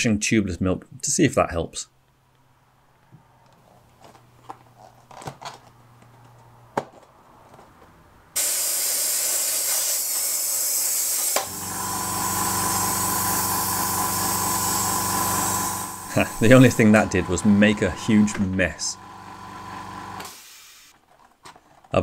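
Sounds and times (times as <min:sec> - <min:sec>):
compressed air hissing into tyre: 0:08.4 - 0:11.6, 0:12.2 - 0:16.8, 0:20.2 - 0:20.9
compressor motor running: 0:08.4 - 0:20.8.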